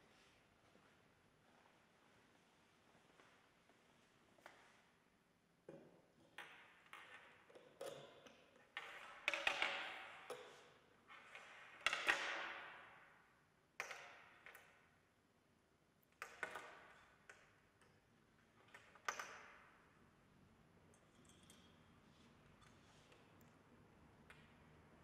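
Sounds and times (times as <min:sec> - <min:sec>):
lab apparatus clicks and clinks: 0:20.9 - 0:21.9.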